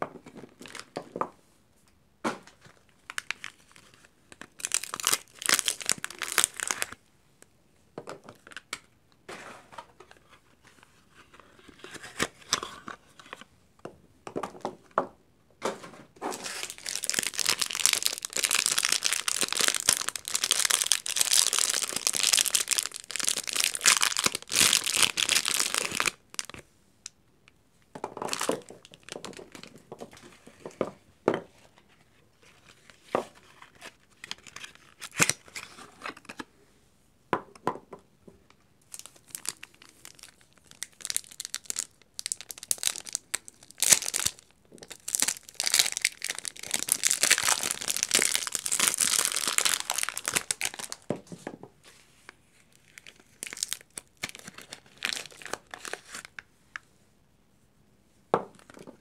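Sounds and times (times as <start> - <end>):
wrappers tearing and crinkling: 3.0 - 7.0, 16.3 - 26.6, 33.6 - 35.6, 38.9 - 51.1, 52.8 - 56.4.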